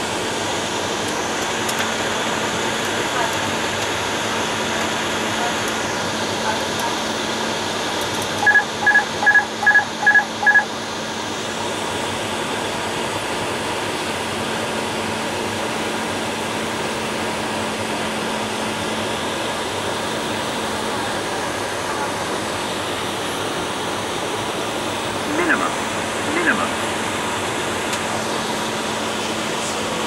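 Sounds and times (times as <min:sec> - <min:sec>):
two-pitch electronic beeps: 0:08.4 - 0:10.7.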